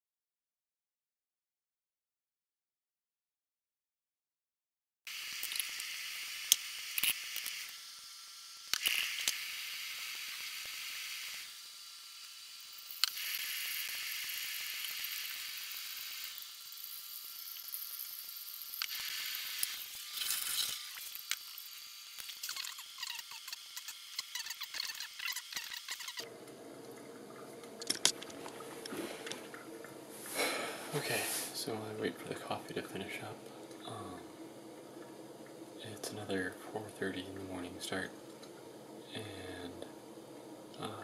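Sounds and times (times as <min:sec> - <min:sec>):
hot water pouring hiss: 0:11.3 - 0:22.6, 0:28.2 - 0:34.3.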